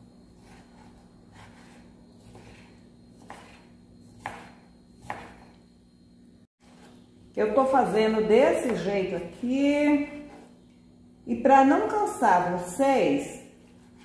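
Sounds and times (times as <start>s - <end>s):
knife slicing meat: 0.4s - 5.4s.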